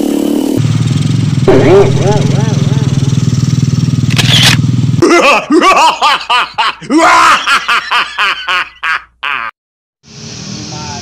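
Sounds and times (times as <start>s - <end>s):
motorcycle engines idling: 0.0s - 5.0s
comic sound effects: 1.5s - 3.2s.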